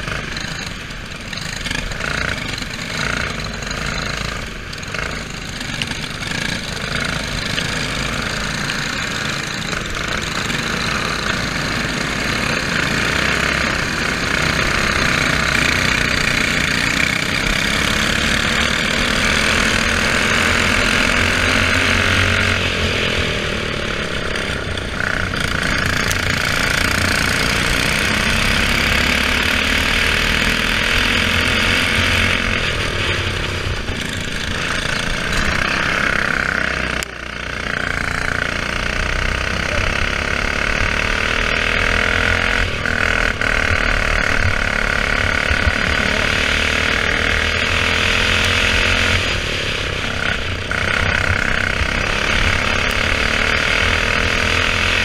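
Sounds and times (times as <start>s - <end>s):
kart engine revving: 0.0s - 55.0s
other kart engines: 0.0s - 55.0s.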